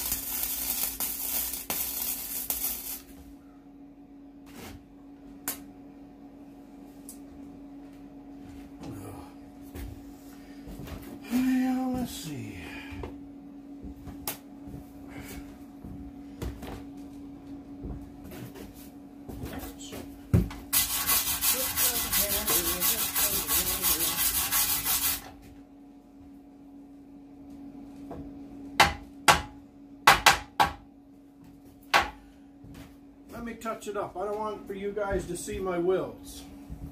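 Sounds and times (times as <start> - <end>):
low steady hum: 0.0 - 36.9
wire brush scrubbing steel: 20.8 - 25.2.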